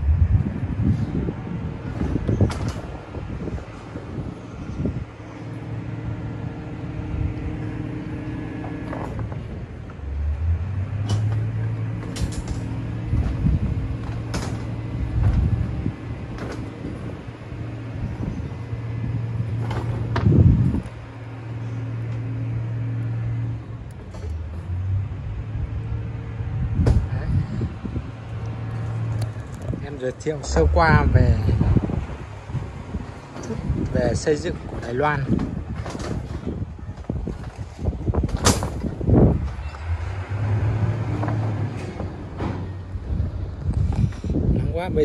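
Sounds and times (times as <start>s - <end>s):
engine humming: 0.0s - 45.0s
sharp clicks and knocks: 10.9s - 15.7s.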